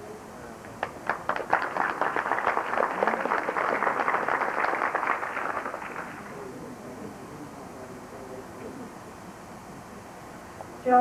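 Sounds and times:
audience applauding: 0.8 - 6.4.

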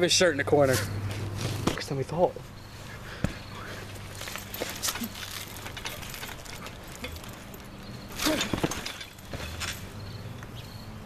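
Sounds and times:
mesh net rustling and scraping: 3.9 - 10.0.

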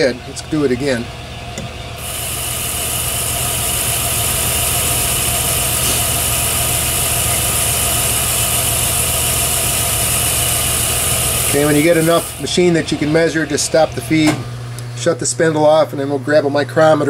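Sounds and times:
lathe motor and gearing hum: 0.0 - 17.0
lathe tool cutting hiss: 2.0 - 14.0.

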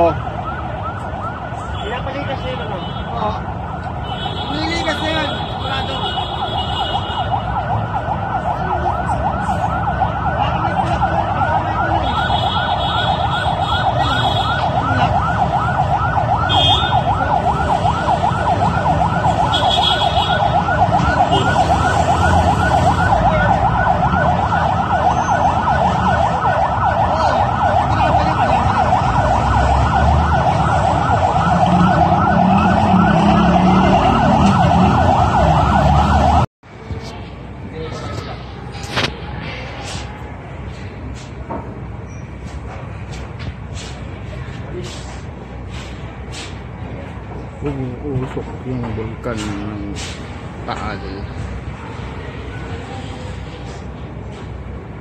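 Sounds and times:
siren yelping: 0.0 - 36.5.

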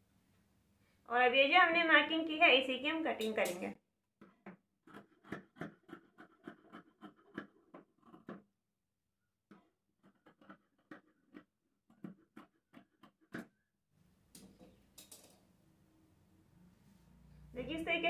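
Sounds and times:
scissors snipping fabric: 9.5 - 13.5.

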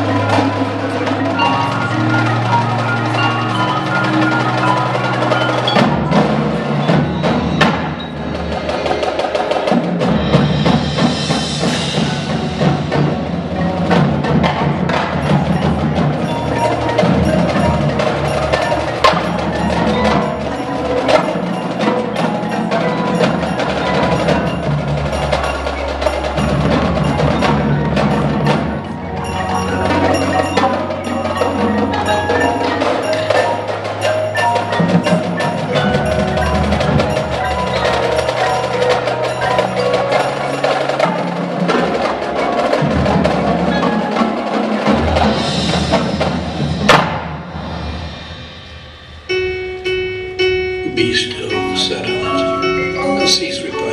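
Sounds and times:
snare drums: 0.0 - 49.4
mallet keyboards: 0.0 - 53.9
tenor drums: 0.0 - 53.9
gong: 44.9 - 53.9.

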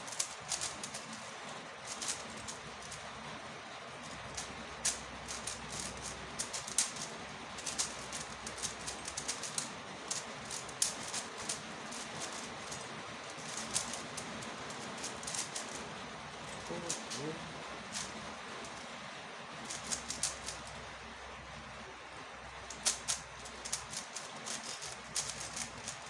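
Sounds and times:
puzzle cube clicking: 0.1 - 2.6, 4.3 - 15.8, 19.7 - 20.6, 22.7 - 26.0.

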